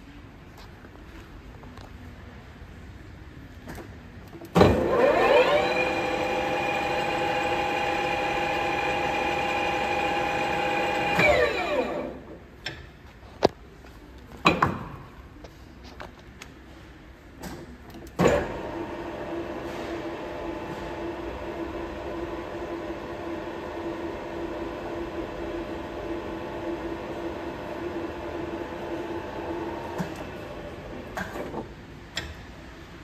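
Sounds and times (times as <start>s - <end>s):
lathe spindle whine: 4.7s - 12.2s.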